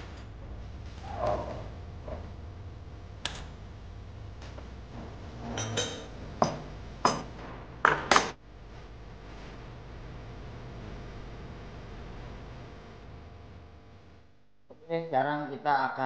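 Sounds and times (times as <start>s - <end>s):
glassware clinking: 5.5s - 7.2s.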